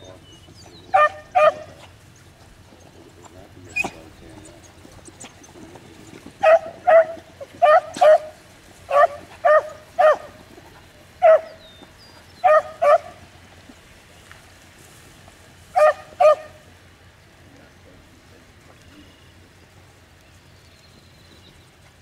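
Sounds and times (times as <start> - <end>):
dog barking: 0.9 - 1.9, 6.4 - 10.4, 11.2 - 11.6, 12.4 - 13.2, 15.8 - 16.6.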